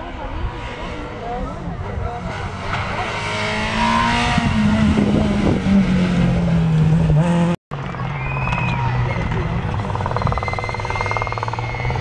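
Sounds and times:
rally car engine passing: 0:00.0 - 0:12.0.

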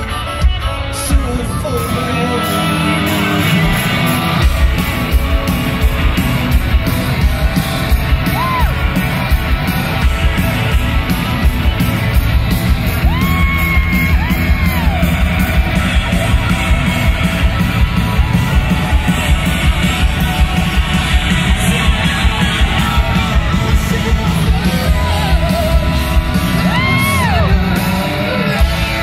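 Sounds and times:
rock band playing live: 0:00.0 - 0:29.0.

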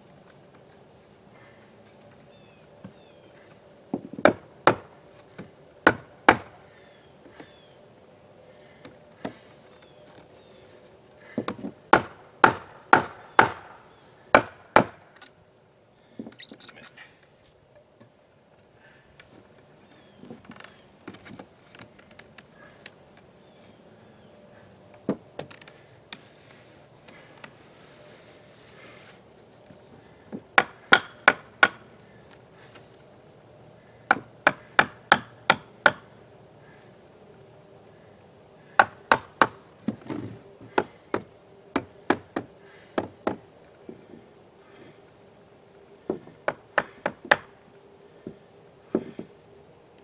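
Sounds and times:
hammer striking nails into wood: 0:05.9 - 0:06.5, 0:11.4 - 0:13.8, 0:14.4 - 0:15.0, 0:30.6 - 0:31.8, 0:34.1 - 0:36.0, 0:38.8 - 0:39.6.

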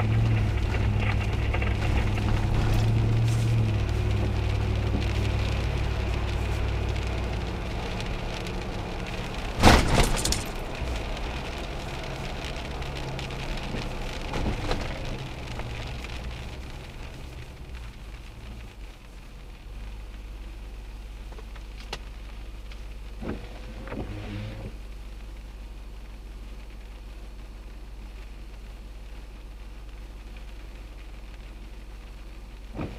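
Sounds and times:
engine idle hum: 0:00.0 - 0:19.6
vehicle engine and tyre noise: 0:00.0 - 0:32.9
loud clatter: 0:09.5 - 0:11.0.

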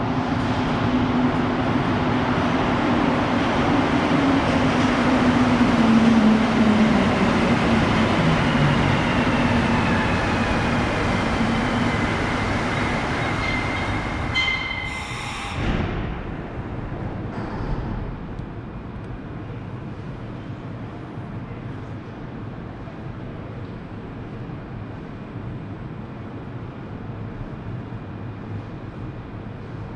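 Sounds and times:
train rolling noise: 0:00.0 - 0:20.9
metro train motor whine: 0:01.0 - 0:16.8.

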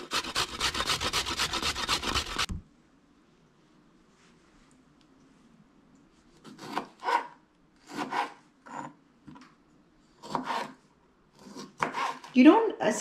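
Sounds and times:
knife slicing on cutting board: 0:10.2 - 0:10.8.

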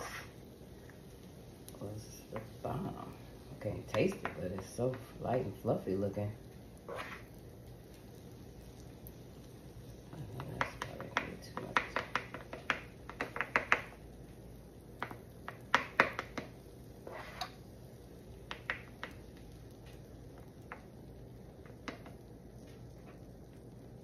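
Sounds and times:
plastic spoon tapping and scraping: 0:03.8 - 0:05.0, 0:10.2 - 0:14.0, 0:15.0 - 0:17.6, 0:18.5 - 0:22.3.

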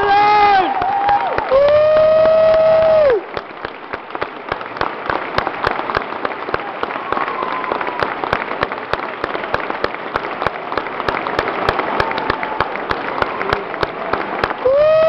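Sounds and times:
loud close cheer: 0:00.0 - 0:03.4, 0:05.3 - 0:08.7, 0:11.1 - 0:15.0
audience clapping: 0:00.0 - 0:15.0
faint whoops: 0:00.1 - 0:03.2, 0:06.6 - 0:08.1, 0:14.6 - 0:15.0.

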